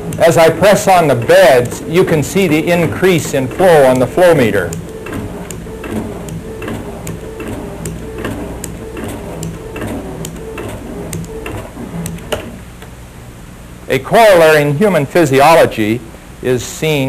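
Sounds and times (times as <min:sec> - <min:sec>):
pump clicking: 0:00.0 - 0:12.9
low pump hum: 0:00.0 - 0:13.8.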